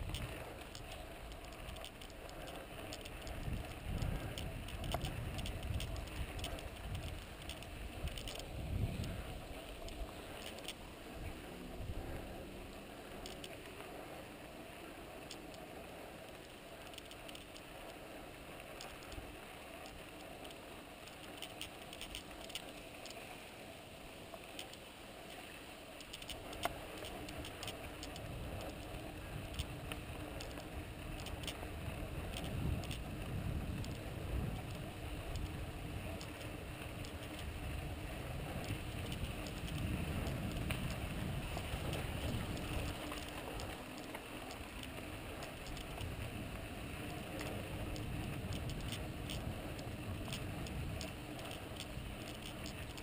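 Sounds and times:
small clicks and ticks: 0:00.0 - 0:53.0
bike tyres hissing on dirt: 0:17.9 - 0:53.0.

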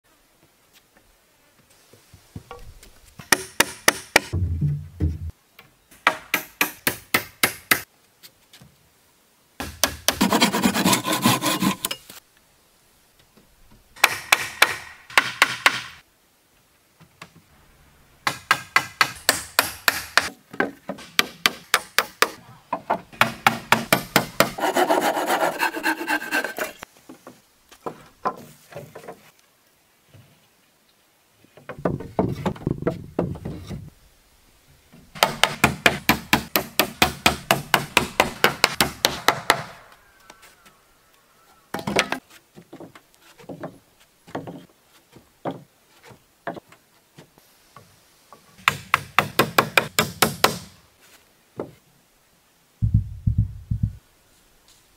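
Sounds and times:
rasping strokes on wood: 0:10.1 - 0:11.9, 0:24.4 - 0:26.8.

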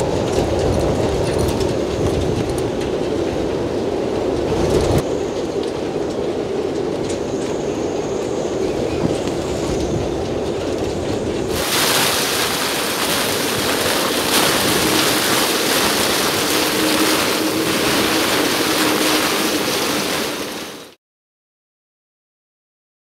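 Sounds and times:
storm wind buffeting microphone: 0:00.0 - 0:20.9
rain lashing a deck: 0:10.0 - 0:21.0
waves breaking: 0:11.5 - 0:21.0.

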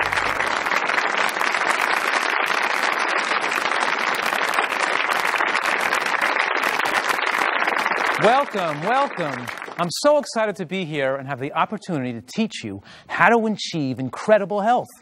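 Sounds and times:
audience applauding: 0:00.0 - 0:10.3.

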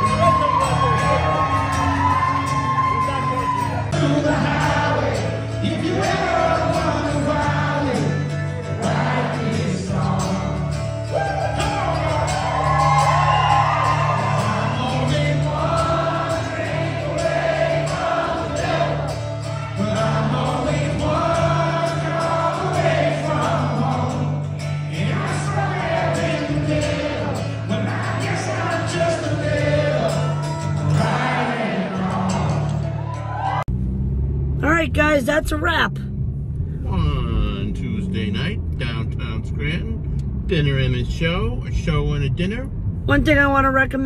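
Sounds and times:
acoustic guitar: 0:00.0 - 0:44.0
man singing into a microphone: 0:04.0 - 0:08.3, 0:14.4 - 0:16.0.

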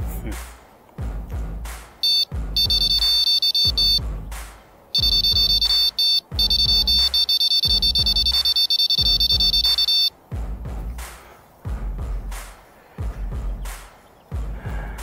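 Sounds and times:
bite alarm beeping rapidly: 0:02.0 - 0:04.0, 0:05.0 - 0:10.1.

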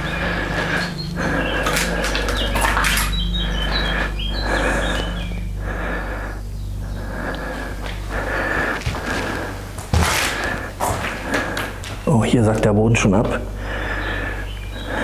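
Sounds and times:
steady low hum: 0:00.0 - 0:15.0
slow footsteps on old floor: 0:07.2 - 0:13.5.

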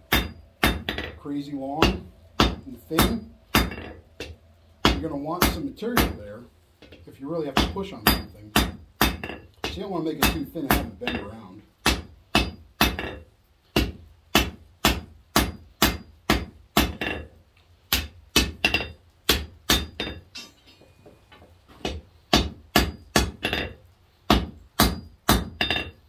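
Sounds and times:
hammer ringing on hot steel: 0:00.0 - 0:01.2, 0:01.8 - 0:06.2, 0:07.6 - 0:17.3, 0:17.9 - 0:21.2, 0:21.8 - 0:26.0.

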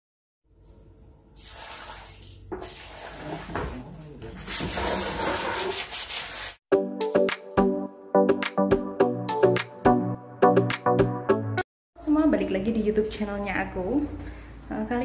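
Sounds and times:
brush scrubbing wet paving: 0:01.4 - 0:06.6.

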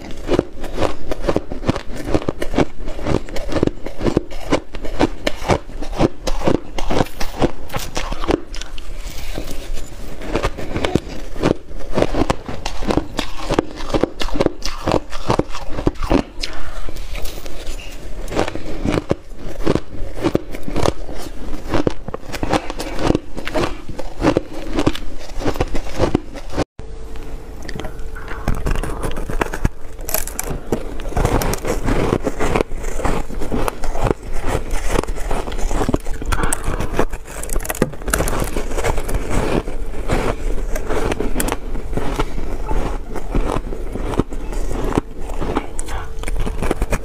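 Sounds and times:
shaved ice crunching: 0:28.6 - 0:47.0.

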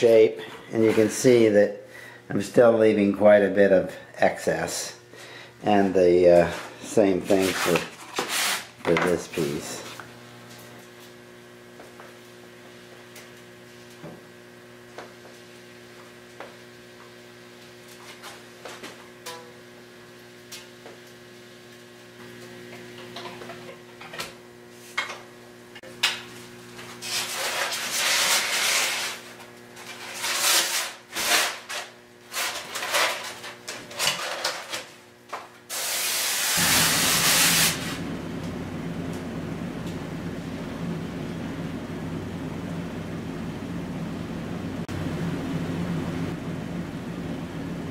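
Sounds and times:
electrical hum: 0:00.0 - 0:47.9
foam scraping and rubbing: 0:06.4 - 0:08.8, 0:27.0 - 0:34.1, 0:35.7 - 0:38.0
steady hiss: 0:35.7 - 0:38.2.

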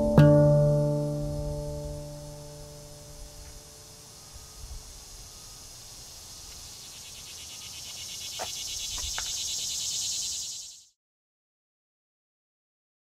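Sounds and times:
cicada buzzing: 0:01.0 - 0:10.9.

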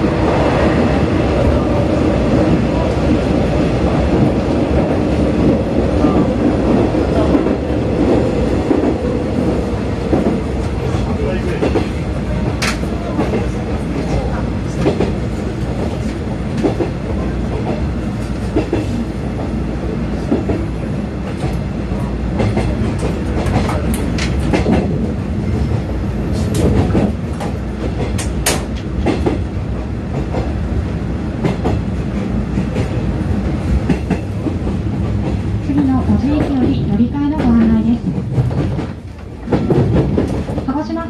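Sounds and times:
train wheels rumbling on rail: 0:00.0 - 0:41.0
rail joint clicks: 0:09.9 - 0:19.5, 0:20.2 - 0:30.6, 0:31.4 - 0:41.0.

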